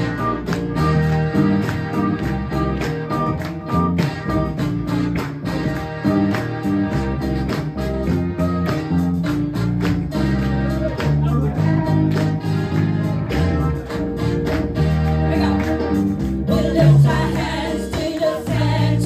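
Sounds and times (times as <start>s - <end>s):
gospel band playing: 0.0s - 19.0s
choir singing: 16.5s - 19.0s.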